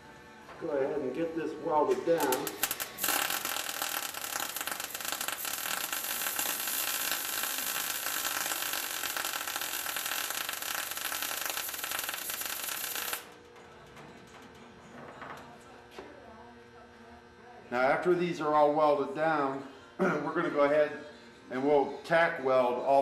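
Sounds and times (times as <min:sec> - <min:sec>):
welding arc crackling: 0:01.8 - 0:13.4.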